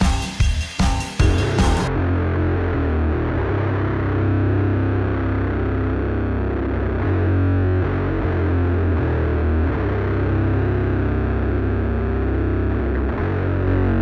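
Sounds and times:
drums: 0.0s - 2.0s
distorted electric guitars: 0.0s - 14.0s
rock song playing: 0.0s - 14.0s
strong bass notes: 0.0s - 14.0s.

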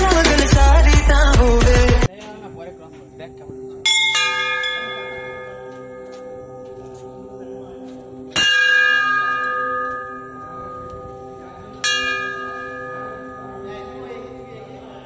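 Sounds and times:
brass bell ringing: 3.8s - 7.4s, 8.1s - 15.0s.

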